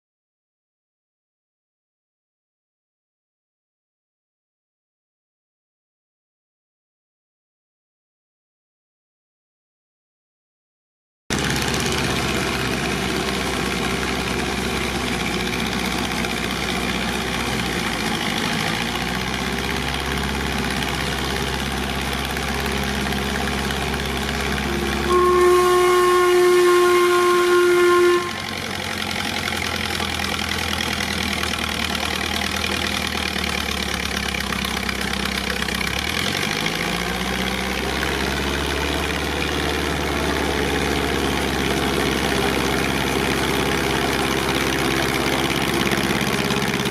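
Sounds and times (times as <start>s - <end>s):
compressor engine running: 11.3s - 46.9s
loud whistle: 24.7s - 28.6s.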